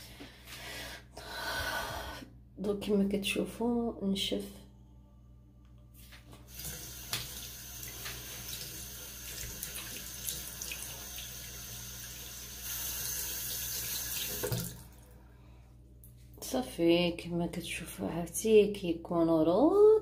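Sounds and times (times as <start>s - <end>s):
tap running into sink: 6.6s - 8.7s.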